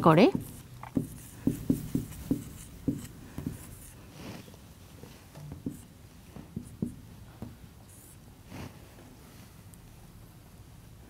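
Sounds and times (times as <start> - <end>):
marker pen tapping and squeaking: 0.2 - 3.9, 5.5 - 5.9, 6.5 - 7.5.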